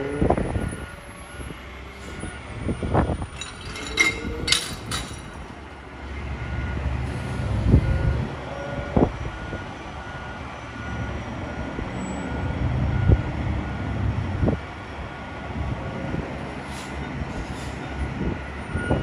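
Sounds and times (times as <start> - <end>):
diesel engine rumble: 0.0 - 19.0
metallic clanks: 3.3 - 5.6
reversing alarm beeping: 6.0 - 14.6, 18.6 - 19.0.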